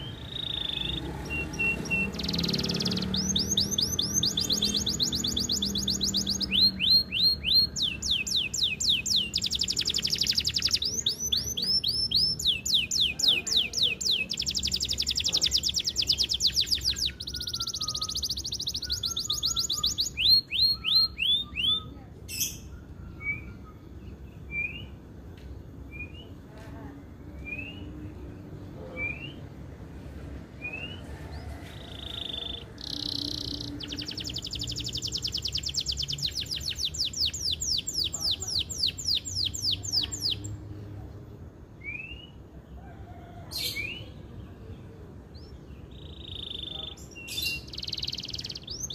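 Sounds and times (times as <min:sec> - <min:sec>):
canary trilling: 0:00.0 - 0:23.6, 0:30.7 - 0:40.7, 0:45.3 - 0:48.9
canary chirps: 0:00.0 - 0:26.4, 0:30.4 - 0:48.9.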